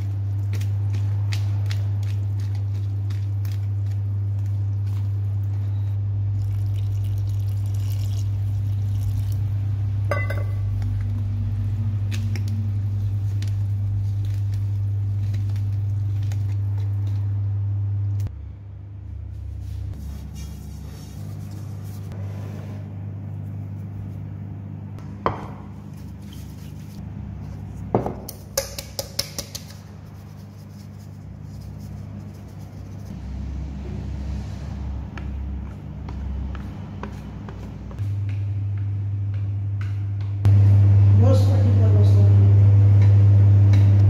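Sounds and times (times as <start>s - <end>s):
loud steady low hum: 0.0s - 44.0s
whisk clinking on bowl: 10.1s - 10.6s.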